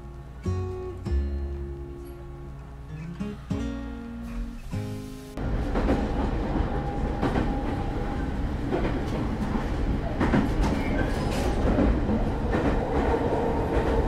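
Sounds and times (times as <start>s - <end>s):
electric train rumbling: 4.3s - 14.0s.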